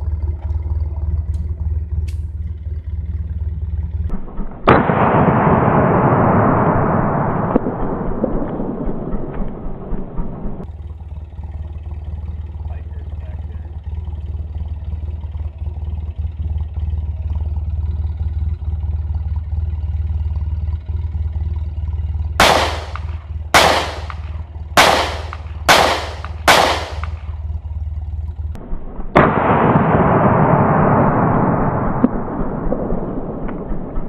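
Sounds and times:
steady low hum: 0.0 - 34.0
pistol shots: 4.6 - 8.0, 22.4 - 27.4, 29.2 - 34.0.

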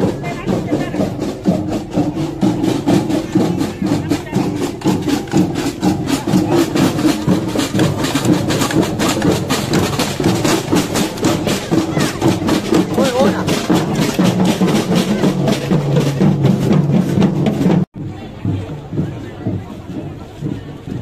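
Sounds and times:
crowd voices: 0.0 - 21.0
marching snare drums: 0.0 - 21.0.

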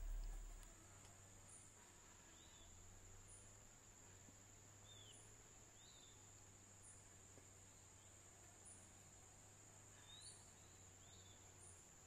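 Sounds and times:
insect drone: 0.0 - 8.1.

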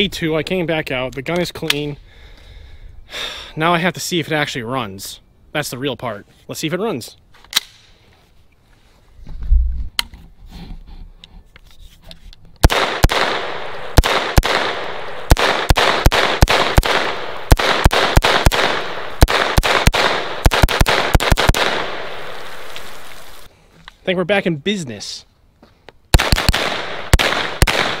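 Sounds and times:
pistol shots: 12.6 - 22.5, 26.1 - 28.0.

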